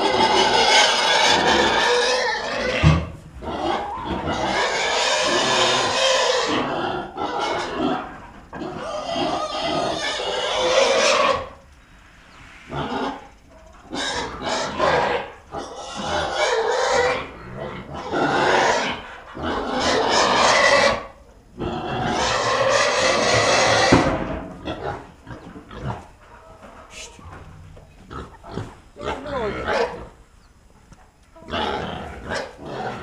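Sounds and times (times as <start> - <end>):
pigs squealing: 0.0 - 11.7, 12.7 - 26.2, 28.0 - 30.2, 31.4 - 33.0.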